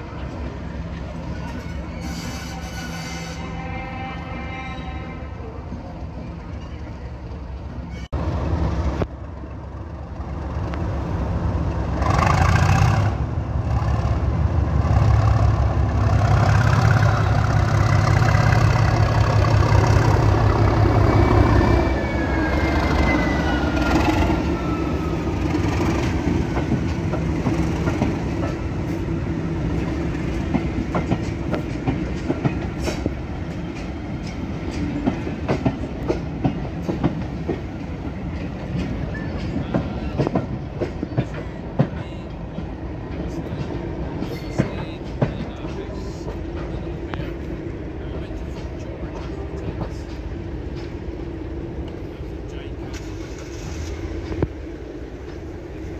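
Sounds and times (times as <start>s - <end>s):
diesel locomotive engine: 0.0s - 55.9s
clickety-clack of train wheels: 11.7s - 21.0s, 22.8s - 55.9s.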